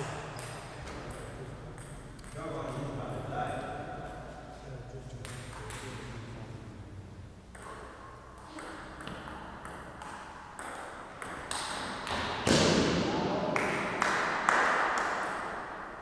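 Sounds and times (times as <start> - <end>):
table tennis ball hits: 7.5 - 15.7.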